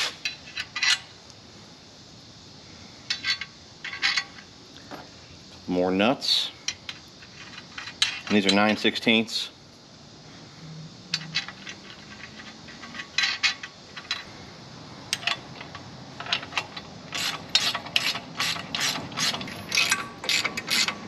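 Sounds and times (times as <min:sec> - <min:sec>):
ratchet wrench clicking: 0:11.1 - 0:14.3, 0:15.1 - 0:21.0.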